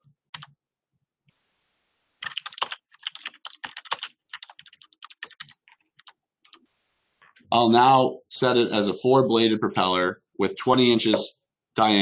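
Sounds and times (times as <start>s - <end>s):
typing on computer keyboard: 2.2s - 6.6s.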